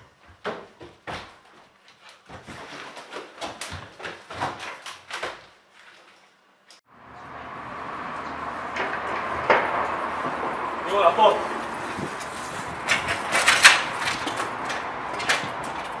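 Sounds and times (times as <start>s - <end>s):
hurried footsteps: 0.0s - 6.2s, 11.3s - 16.0s
outdoor background hum: 6.9s - 16.0s.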